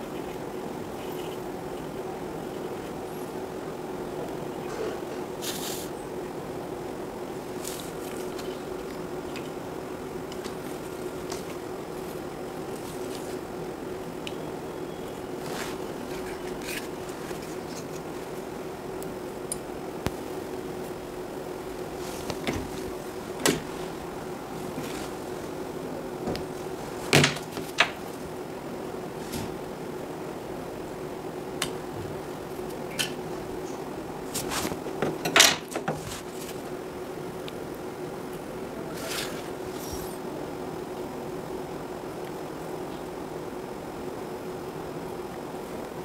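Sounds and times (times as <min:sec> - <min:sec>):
steady background hum: 0:00.0 - 0:46.0
handling rustles: 0:07.4 - 0:13.6, 0:15.1 - 0:18.6, 0:20.0 - 0:28.4, 0:34.3 - 0:36.7.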